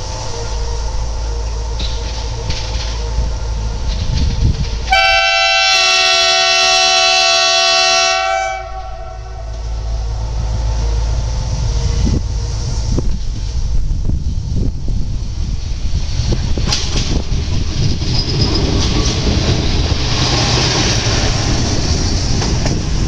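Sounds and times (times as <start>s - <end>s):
railbus engine rumbling: 0.0s - 23.0s
train horn blast: 4.8s - 10.1s.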